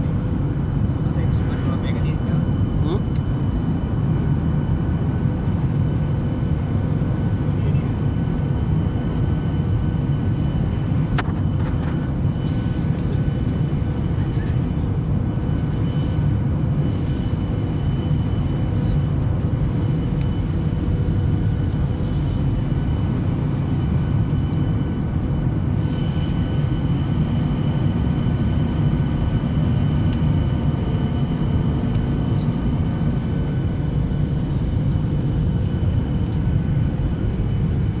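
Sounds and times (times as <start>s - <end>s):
jet engine and airflow roar: 0.0s - 38.0s.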